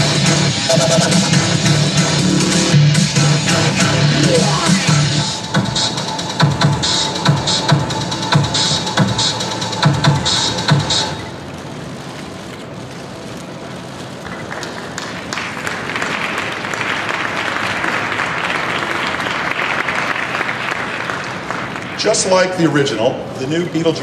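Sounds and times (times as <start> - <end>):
electronic music: 0.0 - 11.4
audience applauding: 14.2 - 22.5.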